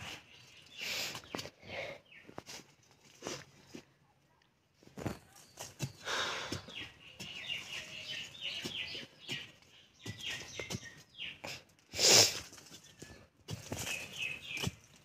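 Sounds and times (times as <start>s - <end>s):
birds chirping: 0.0s - 15.0s
tool scraping soil: 11.9s - 15.0s.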